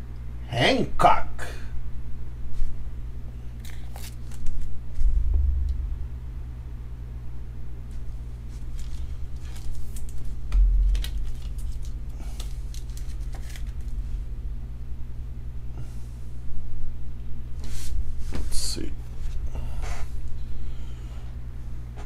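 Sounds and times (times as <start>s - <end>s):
steady low hum: 0.0s - 22.0s
dull bump: 5.0s - 6.8s.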